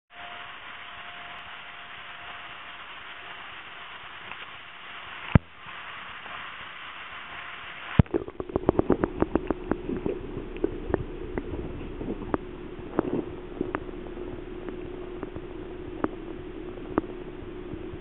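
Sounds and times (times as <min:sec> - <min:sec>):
room hiss: 0:00.1 - 0:18.0
underwater knocks and clicks: 0:08.0 - 0:18.0.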